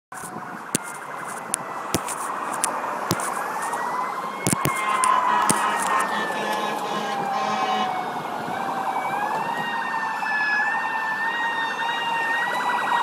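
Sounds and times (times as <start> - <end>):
sharp clicks: 0.1 - 3.8, 4.4 - 6.6
ambulance siren warbling and wailing: 0.2 - 13.0.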